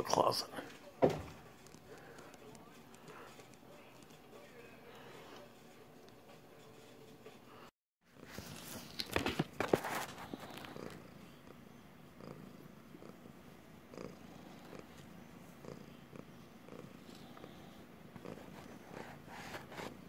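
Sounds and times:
cat purring: 10.0s - 20.0s.

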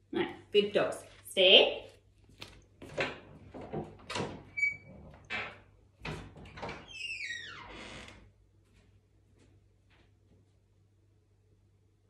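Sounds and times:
door hinge creaking squeal: 4.5s - 5.6s, 6.6s - 8.2s.

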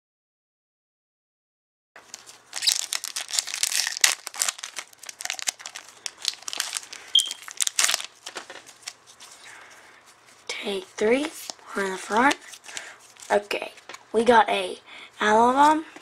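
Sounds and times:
foil wrapper tearing and crinkling: 2.0s - 10.5s, 11.2s - 14.0s.

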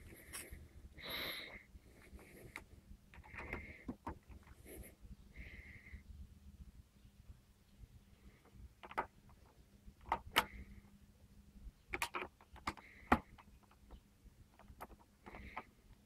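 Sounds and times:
light clicks and knocks of controls: 2.5s - 4.6s, 11.9s - 16.0s.

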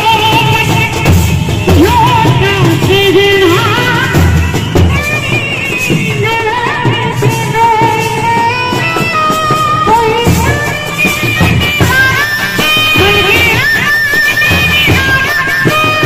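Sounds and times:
bass drum and snare beats: 0.0s - 16.0s.

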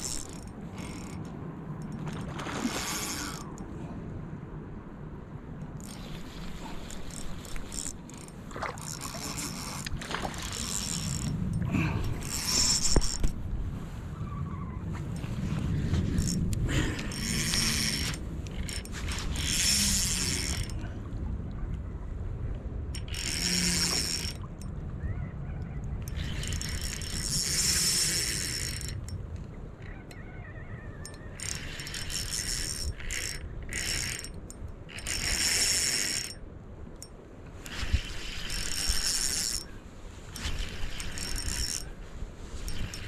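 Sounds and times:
fishing reel gears whirring: 0.0s - 3.7s, 5.7s - 13.4s, 15.2s - 20.8s, 22.9s - 24.7s, 26.0s - 29.2s, 31.0s - 36.4s, 37.0s - 39.7s, 40.3s - 42.0s, 42.6s - 43.0s.

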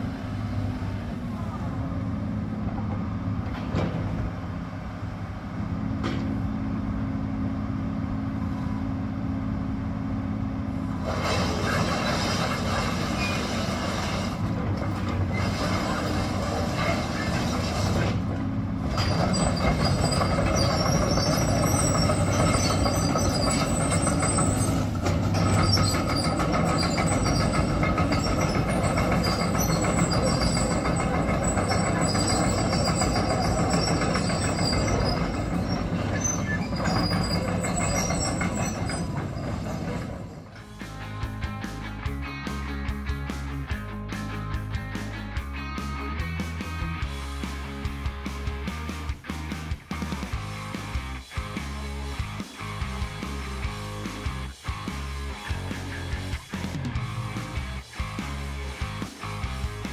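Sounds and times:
excavator diesel engine: 0.0s - 59.9s
steel track clatter: 2.5s - 4.9s, 10.8s - 41.6s
high squealing tones: 18.9s - 40.8s.

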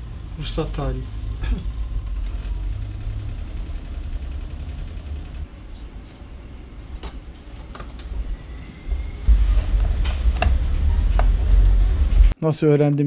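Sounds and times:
low steady rumble: 8.9s - 12.4s.

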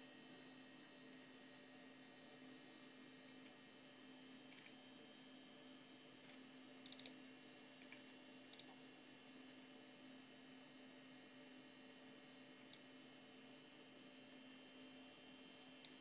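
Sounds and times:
low electrical hum: 0.0s - 16.0s
soft mouse clicks: 4.5s - 4.8s, 6.3s - 7.2s, 7.8s - 8.8s, 12.6s - 12.9s, 15.8s - 16.0s.

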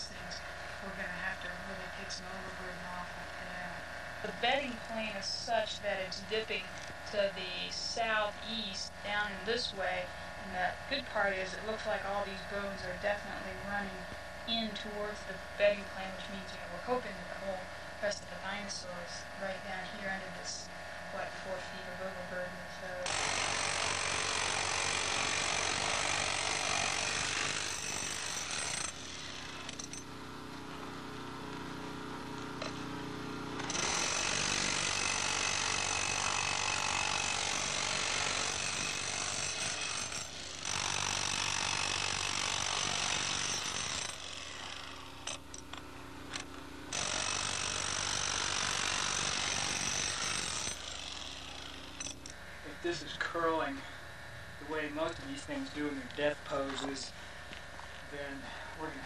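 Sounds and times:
jackhammer breaking stone: 23.0s - 30.1s, 33.6s - 45.7s, 46.3s - 52.3s
steady hum: 50.8s - 59.0s.

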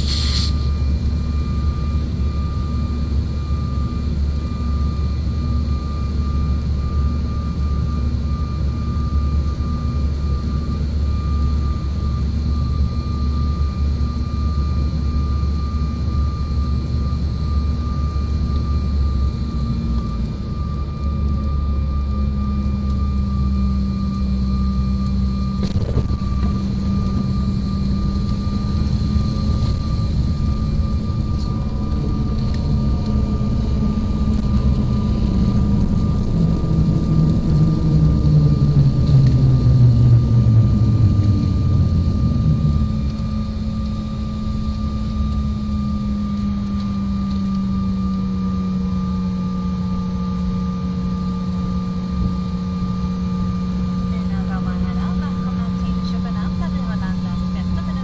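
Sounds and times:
jet engine cabin hum: 0.0s - 58.0s.

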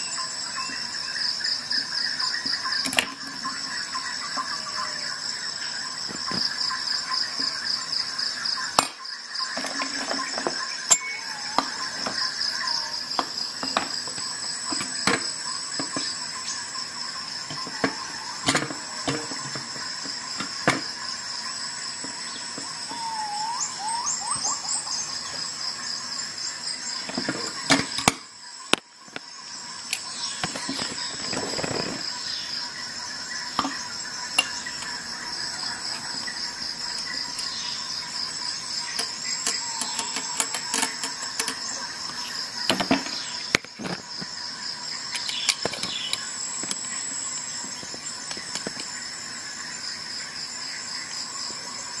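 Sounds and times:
metal tools clicking and knocking: 9.6s - 12.2s, 34.4s - 35.0s, 38.9s - 41.8s
high-pitched chirring tone: 10.8s - 13.1s, 22.9s - 25.3s.

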